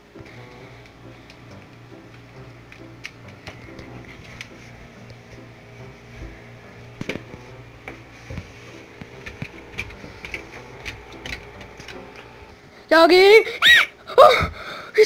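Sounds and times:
low steady hum: 0.0 - 15.0
dog claws clicking on wooden floor: 9.0 - 12.3.

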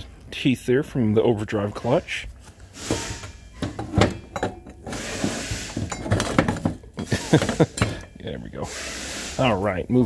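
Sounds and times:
metal parts clinking and knocking: 2.9 - 8.2.

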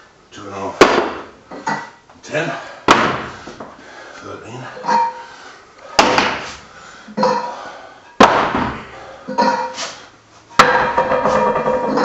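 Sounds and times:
weight plates clanking: 10.6 - 12.0.

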